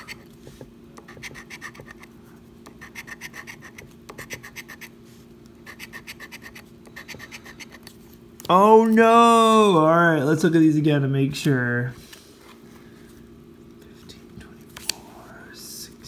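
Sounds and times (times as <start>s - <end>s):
coin scratching lottery ticket: 1.0s - 2.1s, 2.7s - 4.9s, 5.6s - 7.8s.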